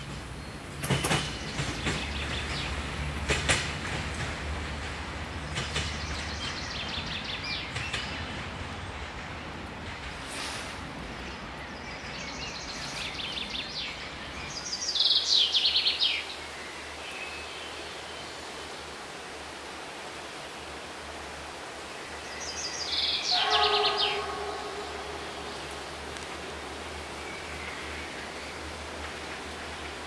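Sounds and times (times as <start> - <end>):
outdoor background hiss: 0.0 - 30.0.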